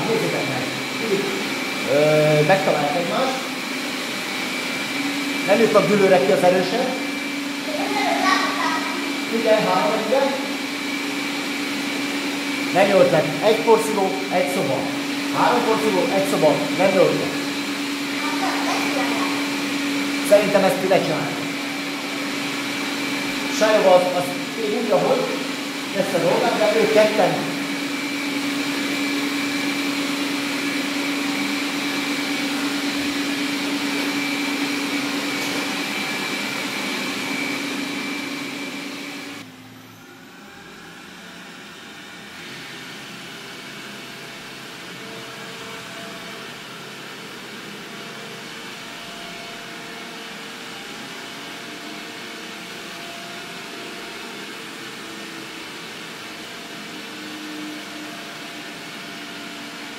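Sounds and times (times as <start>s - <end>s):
robot vacuum motor hum: 0.0s - 43.9s.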